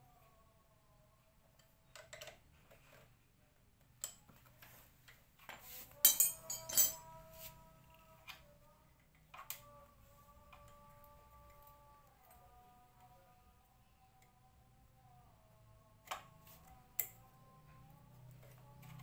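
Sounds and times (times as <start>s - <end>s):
metal tools clinking: 6.0s - 7.1s.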